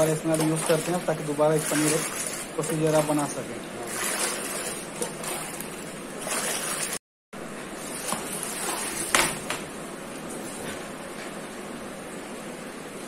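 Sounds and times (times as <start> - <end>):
liquid sloshing in steel pot: 3.8 - 7.0.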